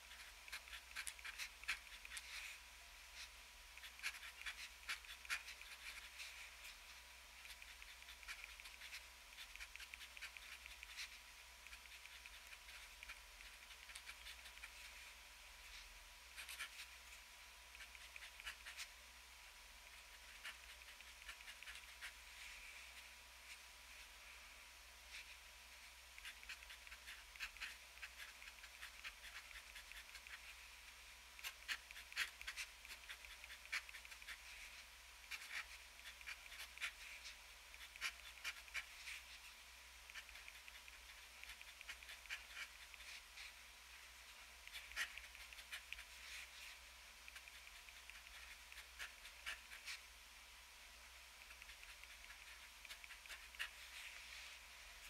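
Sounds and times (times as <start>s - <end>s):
fountain pen scratching on paper: 0.0s - 2.6s, 3.2s - 6.8s, 7.4s - 15.0s, 16.4s - 17.0s, 17.7s - 18.9s, 19.9s - 22.2s, 26.2s - 30.6s, 31.4s - 39.4s, 40.1s - 43.6s, 44.6s - 50.0s, 51.4s - 54.5s.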